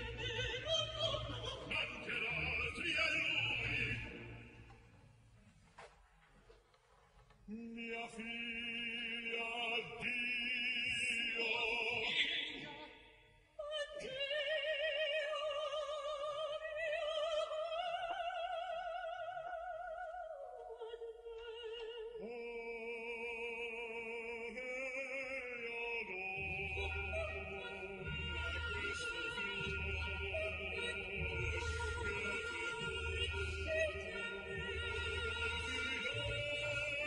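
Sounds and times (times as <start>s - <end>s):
operatic duet singing: 0.0s - 4.9s, 7.4s - 37.0s.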